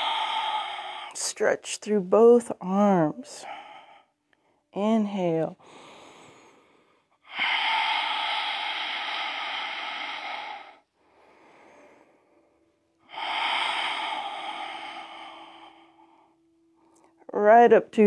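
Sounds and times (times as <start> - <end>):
woman breathing deeply: 0.0 - 1.2, 3.4 - 4.7, 5.6 - 17.3.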